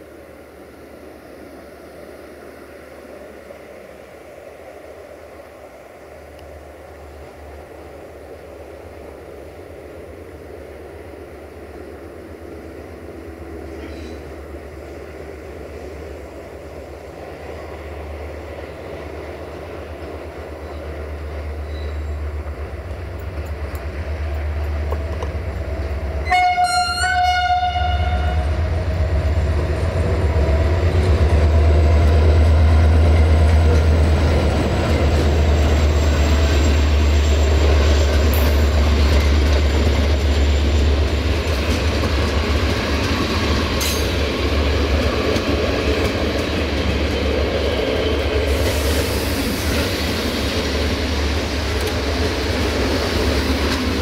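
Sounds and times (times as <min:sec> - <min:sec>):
diesel locomotive engine rumbling: 0:00.0 - 0:54.0
click at rail joint: 0:06.3 - 0:06.6, 0:13.7 - 0:14.3, 0:21.6 - 0:25.9, 0:41.4 - 0:47.3, 0:51.6 - 0:52.2, 0:53.6 - 0:54.0
train horn blast: 0:26.2 - 0:28.7.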